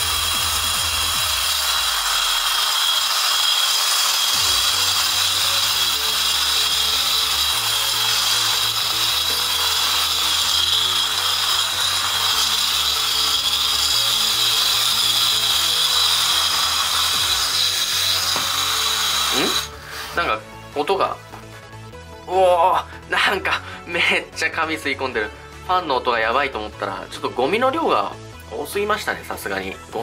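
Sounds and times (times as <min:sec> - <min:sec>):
small vacuum fan whining: 0:00.0 - 0:19.8.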